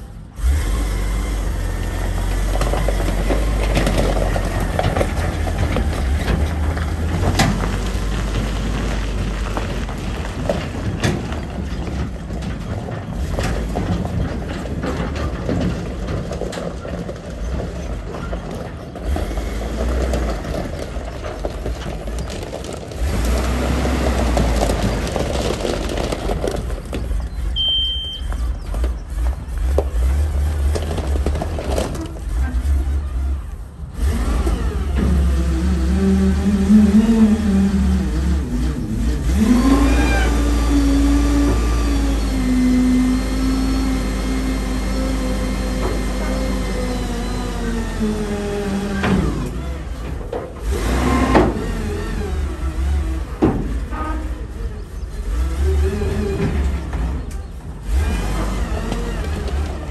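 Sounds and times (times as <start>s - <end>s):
short high beep: 27.6s - 28.3s.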